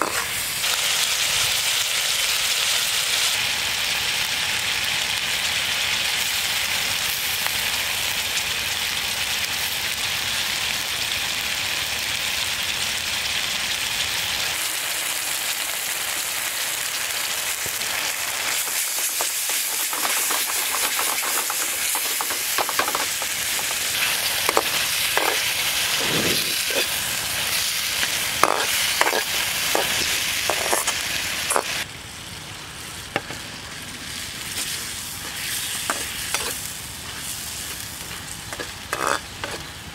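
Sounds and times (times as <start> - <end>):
metal spatula scraping a pan: 0.0 - 0.4, 28.0 - 31.8, 34.6 - 39.7
food sizzling in a frying pan: 0.0 - 39.9.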